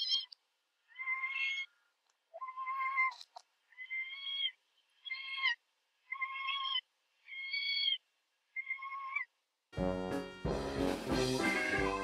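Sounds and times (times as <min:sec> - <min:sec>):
cat meowing: 0:02.4 - 0:07.7, 0:11.5 - 0:12.0.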